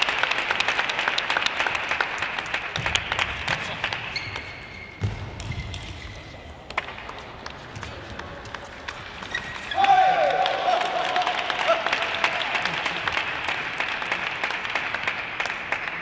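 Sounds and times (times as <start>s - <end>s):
crowd applause: 0.0s - 4.2s, 6.8s - 16.0s.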